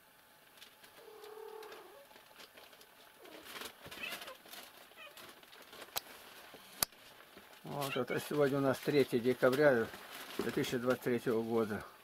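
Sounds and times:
faint scuffling: 0.8s - 11.9s
low drawn-out animal call: 1.0s - 2.0s.

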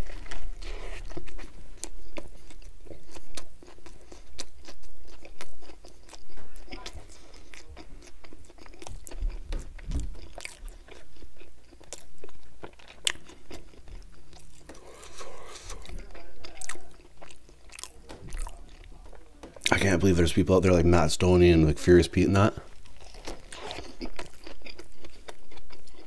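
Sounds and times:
chewing close to microphone: 0.0s - 19.8s, 22.6s - 26.0s
person biting food: 14.6s - 17.0s.

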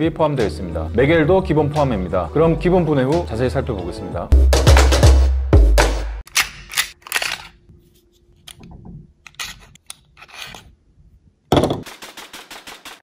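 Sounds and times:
pistol parts clicking and scraping: 6.3s - 7.7s, 8.4s - 10.7s.

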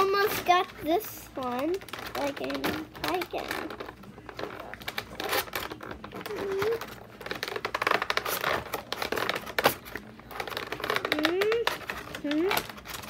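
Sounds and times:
plastic packaging crinkling: 0.0s - 13.0s.

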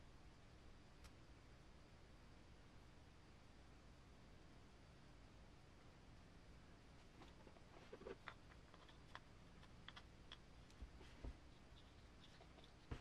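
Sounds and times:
small parts clicking and tapping: 8.0s - 10.9s.

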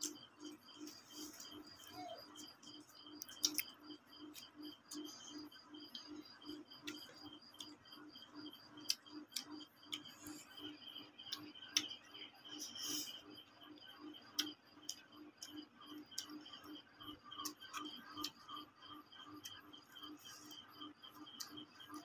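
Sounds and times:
steady ticking pulse: 0.0s - 22.0s
mouth clicks and smacks: 1.8s - 6.2s, 8.4s - 10.6s.

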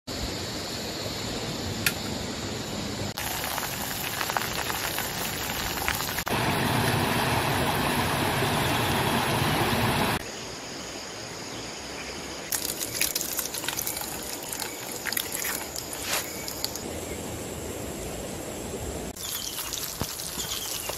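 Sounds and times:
food frying in a pan: 3.2s - 10.2s, 12.5s - 16.8s, 19.2s - 20.9s.

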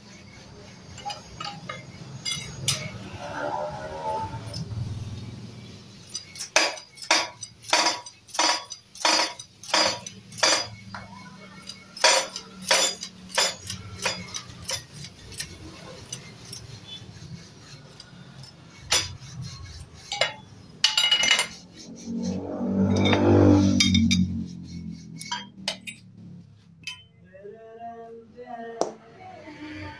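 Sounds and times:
hammer striking metal: 6.1s - 16.7s, 18.4s - 21.8s.

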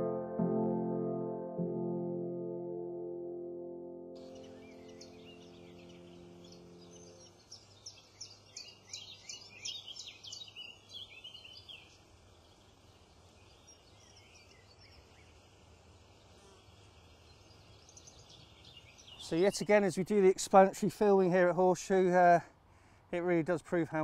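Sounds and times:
background music: 0.0s - 7.2s
songbird chirping: 4.2s - 20.3s
faint outdoor background noise: 4.2s - 24.0s.

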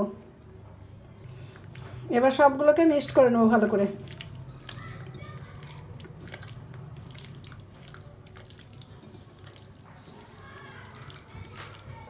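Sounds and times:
hand squelching meat in marinade: 1.3s - 12.0s.

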